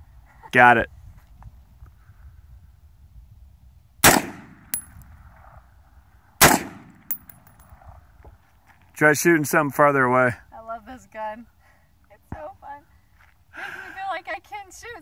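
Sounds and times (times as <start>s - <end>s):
rifle shots with echo: 4.0s - 5.0s, 6.4s - 7.7s
metallic ring of steel target: 4.3s - 5.0s, 6.5s - 7.7s.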